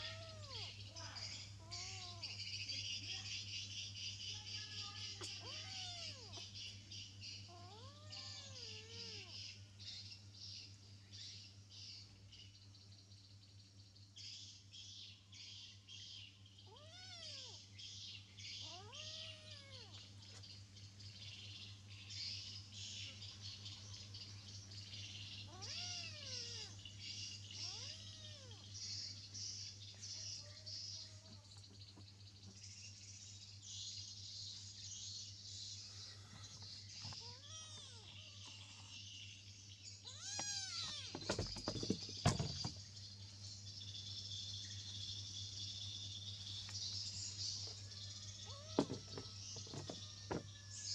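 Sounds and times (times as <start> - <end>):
kitten meowing: 0.0 - 0.7, 5.2 - 6.4, 7.5 - 9.4, 16.7 - 17.6, 18.6 - 20.0, 25.5 - 26.7, 27.6 - 28.6, 37.2 - 38.5, 40.0 - 41.1
insect chirring: 15.5 - 35.7, 36.6 - 50.9.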